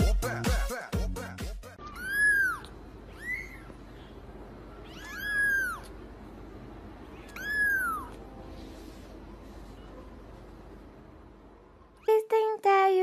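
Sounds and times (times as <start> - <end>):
kitten meowing: 1.8 - 3.8, 4.8 - 6.0, 7.1 - 8.2.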